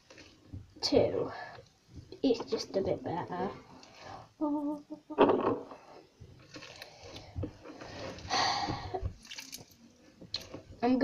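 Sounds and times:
slime squishing: 5.2s - 10.8s.

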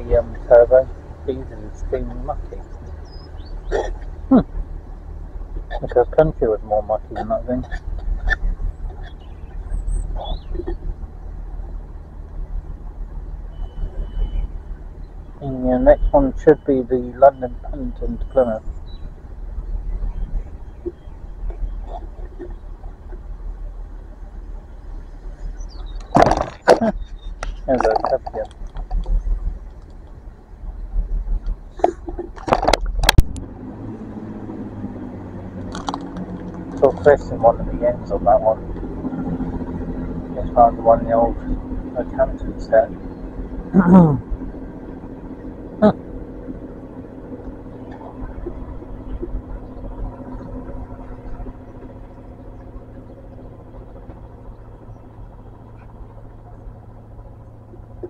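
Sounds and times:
train diesel engines droning: 0.0s - 4.7s, 5.6s - 30.9s, 34.6s - 58.0s
sharp clicks and knocks: 25.8s - 30.2s, 30.9s - 33.5s, 35.6s - 37.1s.

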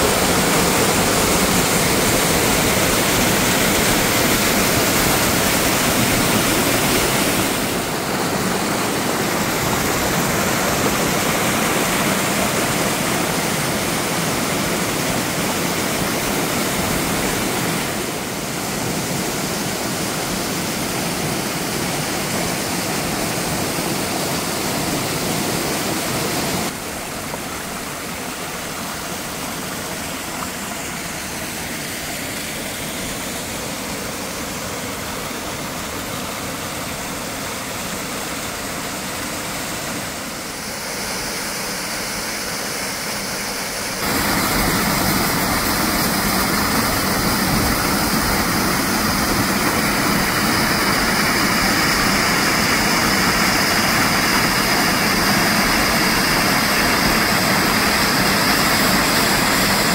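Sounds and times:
waterfall roaring: 0.0s - 59.9s.

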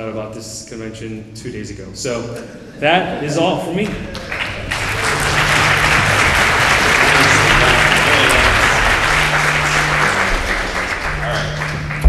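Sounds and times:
audience applause: 4.1s - 12.0s.

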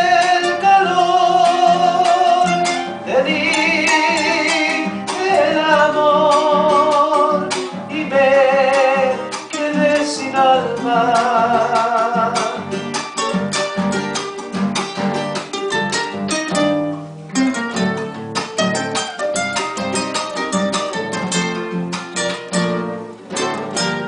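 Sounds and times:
man singing with vibrato: 0.0s - 14.2s
acoustic guitars playing: 0.0s - 24.0s.

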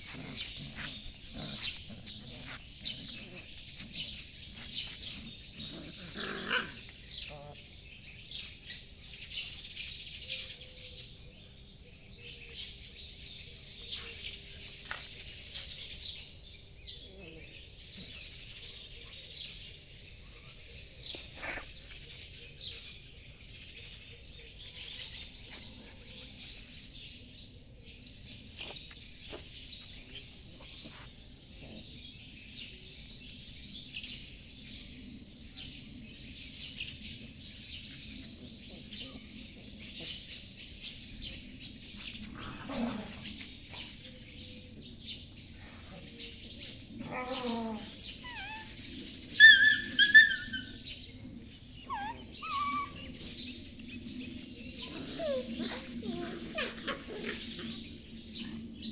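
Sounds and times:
birds chirping: 0.0s - 58.9s
puppy yelping: 49.4s - 50.8s, 51.9s - 53.1s.

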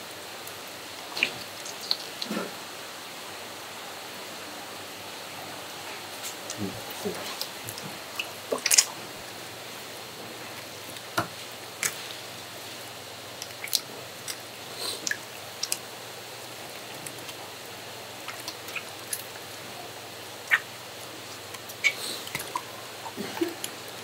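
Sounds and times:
wet squelches of seafood handled: 6.0s - 23.7s.

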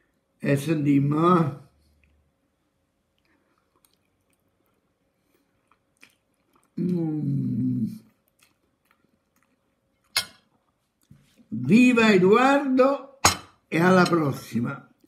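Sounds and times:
man humming mmm: 6.8s - 8.1s.

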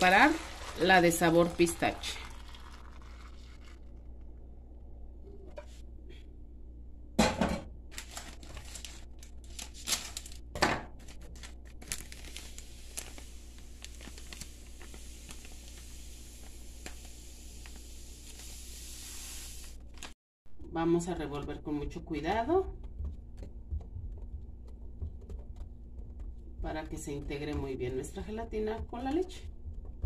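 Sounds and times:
foil sachet crinkling: 7.9s - 10.4s, 11.0s - 20.2s
loud sharp foil crackles: 7.9s - 10.4s, 11.3s - 16.0s.

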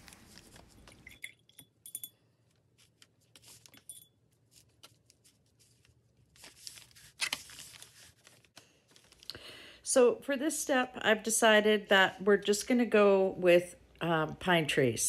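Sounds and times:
painting supplies clicking and clinking: 0.6s - 4.3s.

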